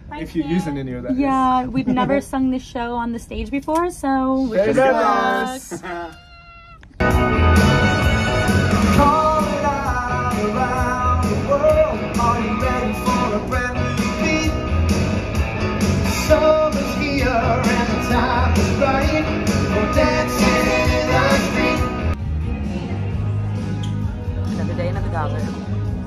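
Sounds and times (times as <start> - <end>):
backing track with drum beat: 7.0 - 26.0
people singing rock and roll: 16.1 - 22.2.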